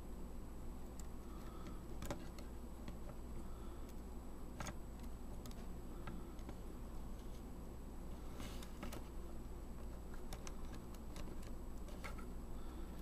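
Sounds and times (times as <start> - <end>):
steady low hum: 0.0 - 13.0
faint clicks and ticks: 0.8 - 7.4, 9.8 - 13.0.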